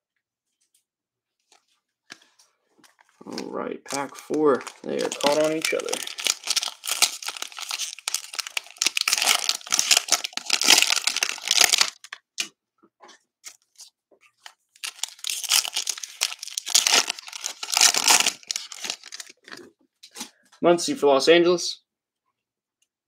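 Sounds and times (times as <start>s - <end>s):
plastic wrappers crinkling and tearing: 2.9s - 12.5s, 13.4s - 19.7s.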